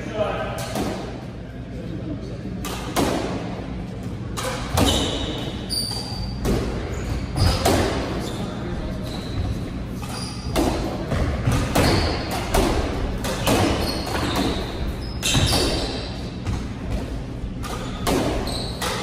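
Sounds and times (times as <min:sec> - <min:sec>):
shoes squeaking on wooden floor: 0:04.8 - 0:10.6, 0:18.4 - 0:19.0
squash ball thwacks: 0:07.4 - 0:08.2, 0:10.4 - 0:19.0.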